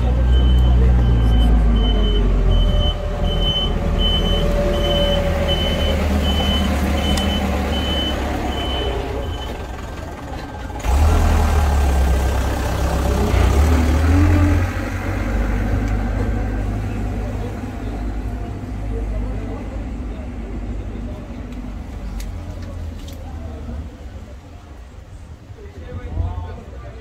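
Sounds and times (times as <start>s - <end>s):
low engine rumble: 0.0s - 27.0s
reversing alarm beeping: 0.2s - 9.8s.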